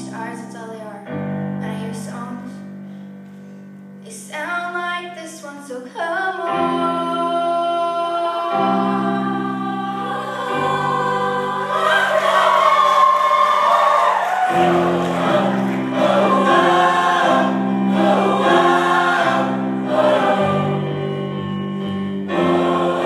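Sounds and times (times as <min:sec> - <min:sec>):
choir singing: 0:07.9 - 0:23.0.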